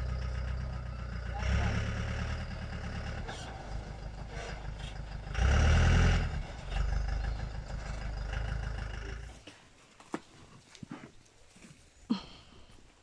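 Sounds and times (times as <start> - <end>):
truck diesel engine running: 0.0 - 9.5.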